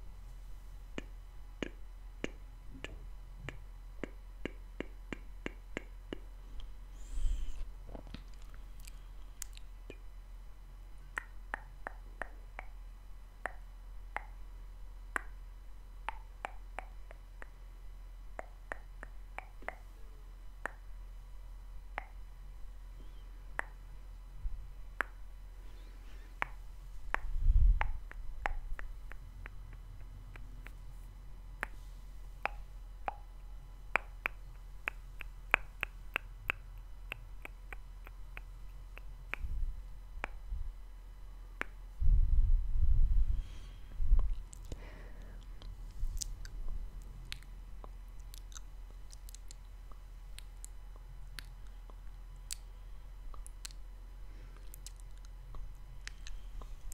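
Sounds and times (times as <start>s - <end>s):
wet mouth clicks and lip smacks: 8.1s - 10.0s, 45.4s - 46.6s, 47.2s - 49.7s, 50.3s - 52.7s, 53.3s - 53.8s, 54.6s - 56.4s
low rumble: 42.0s - 44.8s.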